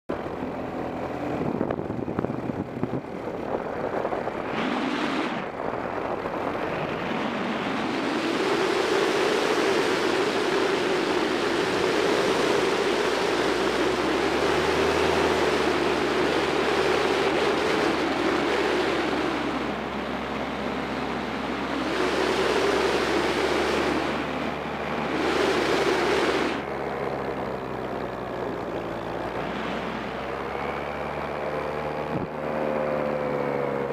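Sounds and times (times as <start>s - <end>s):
paramotor engine drone: 0.1s - 33.9s
wind rush on microphone: 0.1s - 33.9s.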